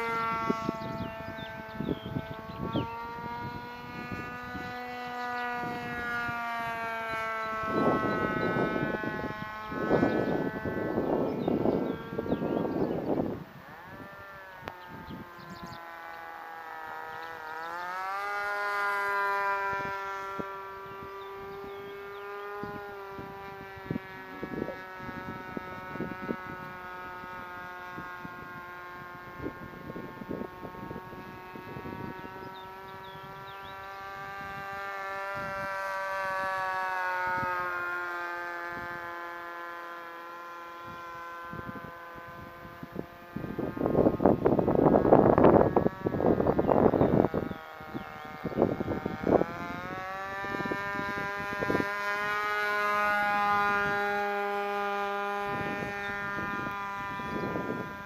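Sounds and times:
model airplane engine drone: 0.0s - 58.0s.

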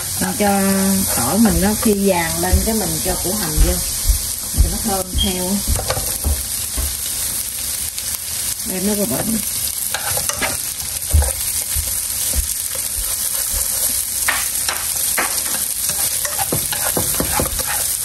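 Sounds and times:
onion sizzling in hot oil: 0.0s - 18.0s
utensil scraping a pan: 0.9s - 2.4s, 9.9s - 11.5s, 12.7s - 18.0s.

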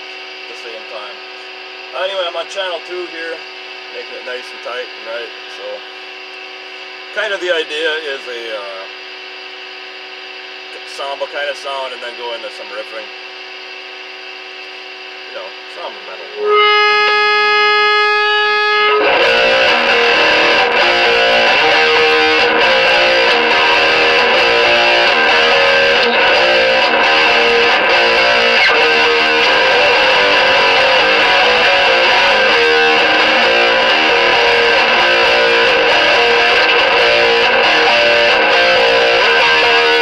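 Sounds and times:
distorted electric guitar metal riff: 15.4s - 40.0s.

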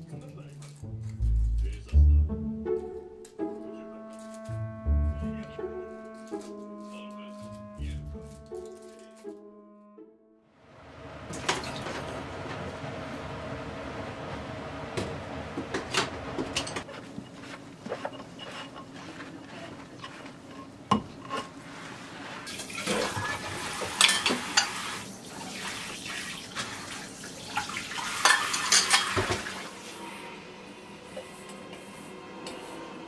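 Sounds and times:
water splashing: 22.5s - 29.7s
dishes clinking in a sink: 22.6s - 25.0s, 27.5s - 29.6s.

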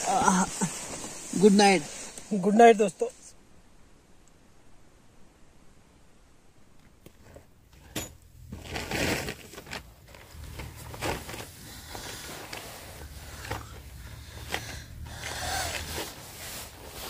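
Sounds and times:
rustling handling noises: 6.8s - 17.0s
low steady rumble: 7.5s - 17.0s.

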